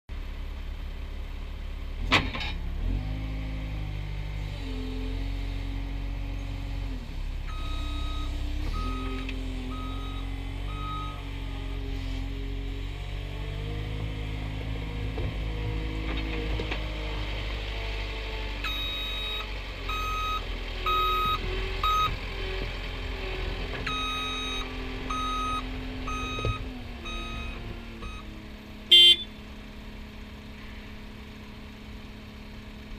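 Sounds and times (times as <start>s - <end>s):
diesel loader engine running: 0.1s - 32.9s
reversing alarm beeping: 7.5s - 11.2s, 18.6s - 22.2s, 23.9s - 28.3s, 28.9s - 29.3s.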